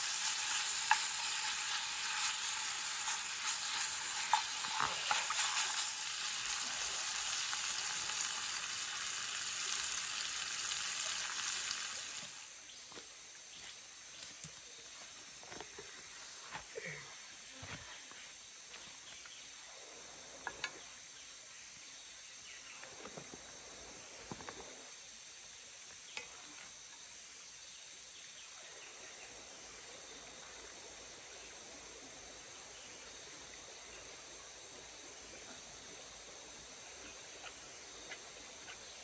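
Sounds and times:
meat sizzling in a frying pan: 0.0s - 12.6s.

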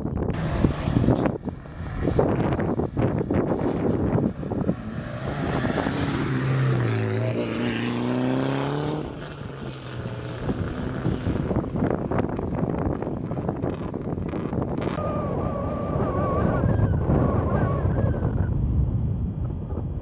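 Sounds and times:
rally car engine: 0.4s - 18.5s
rough crackling noise: 9.1s - 16.2s.

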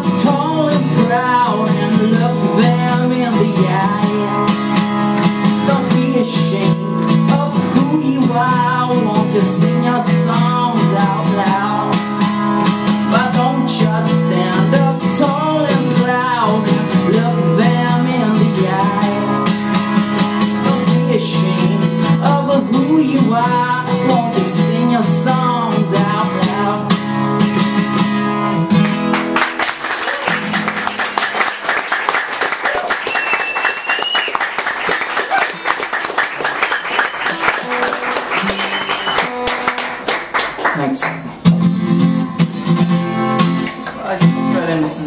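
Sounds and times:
man singing: 0.0s - 19.8s, 20.6s - 27.1s, 44.0s - 45.0s
acoustic guitar strumming: 0.0s - 45.0s
applause: 28.7s - 41.5s.

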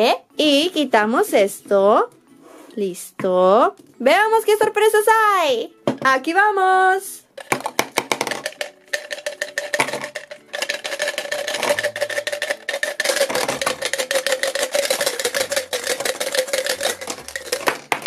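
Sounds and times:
gumballs clattering into plastic cup: 7.4s - 18.0s.

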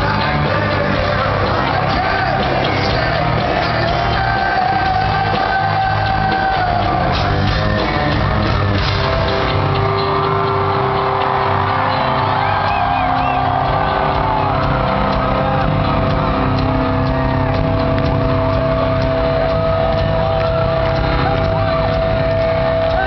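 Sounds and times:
live rock band playing: 0.0s - 23.0s
crowd shouting: 9.7s - 23.0s.

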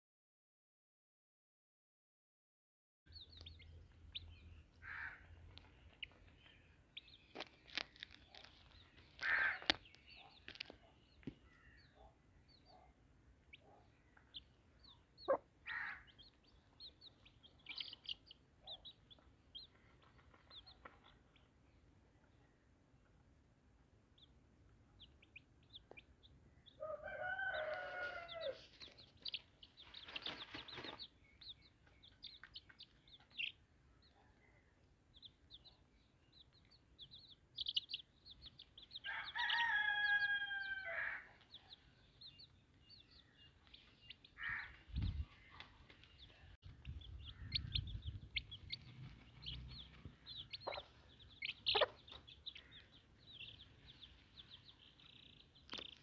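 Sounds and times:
chicks peeping: 3.1s - 12.8s, 13.4s - 22.4s, 24.1s - 34.2s, 34.8s - 56.0s
rooster crowing: 26.8s - 28.6s, 39.1s - 41.3s.

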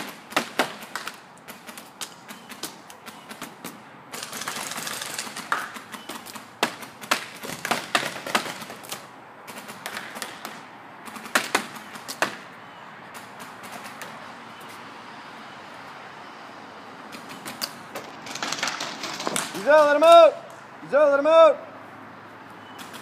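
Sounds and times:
paintball markers firing: 0.0s - 12.4s.

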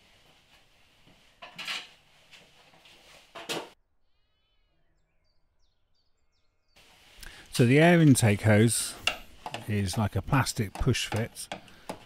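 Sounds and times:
faint hiss: 6.8s - 9.0s
hand tools clattering: 8.1s - 12.0s.

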